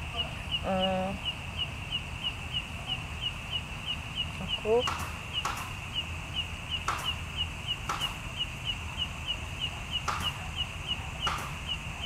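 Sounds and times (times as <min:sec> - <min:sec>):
small animal chirping: 0:00.0 - 0:12.0.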